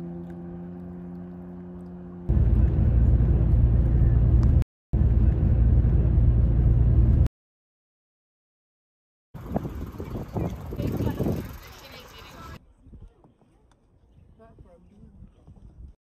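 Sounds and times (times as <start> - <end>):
wind buffeting microphone: 9.4 - 16.0.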